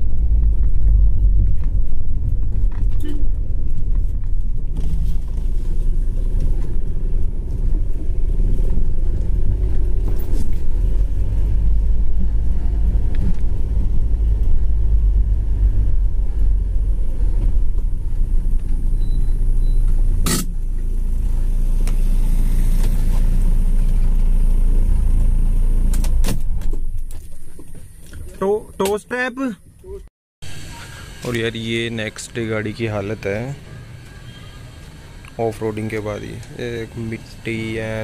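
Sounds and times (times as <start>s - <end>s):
car engine and tyres on sand: 0.0s - 28.9s.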